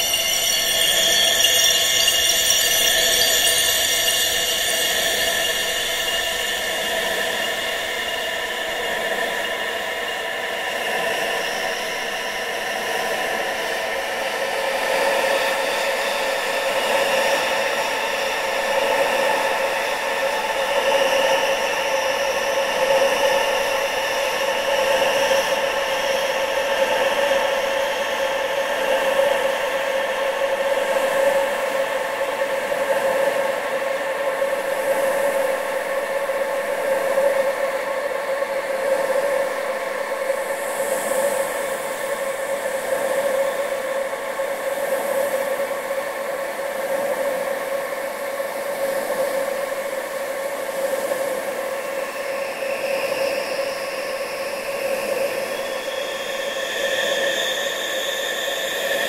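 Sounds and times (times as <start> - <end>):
faint whistling tones: 0.0 - 12.2, 52.2 - 59.0.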